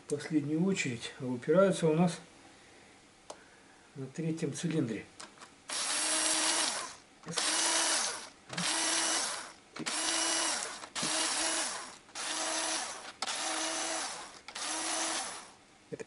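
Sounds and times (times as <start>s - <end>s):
cordless drill motor spinning: 5.7s - 15.6s.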